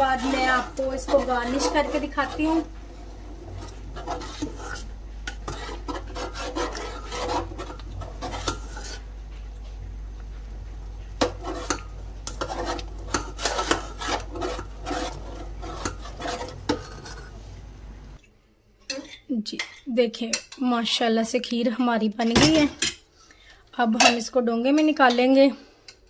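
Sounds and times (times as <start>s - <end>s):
metal spoon scraping metal pot: 0.0s - 9.1s, 11.2s - 17.4s.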